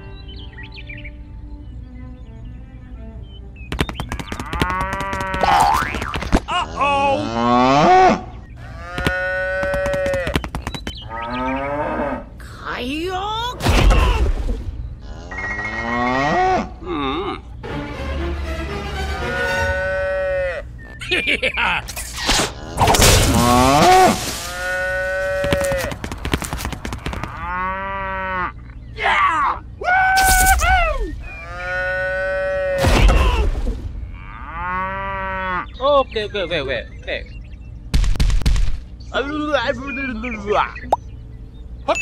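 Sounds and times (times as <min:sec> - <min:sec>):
quick clicks: 0:03.7 - 0:05.4
cows mooing: 0:04.4 - 0:05.9, 0:06.6 - 0:10.4, 0:11.0 - 0:12.4, 0:15.0 - 0:17.5, 0:19.2 - 0:20.8, 0:22.5 - 0:26.3, 0:27.0 - 0:28.7, 0:31.2 - 0:32.8, 0:34.1 - 0:35.8.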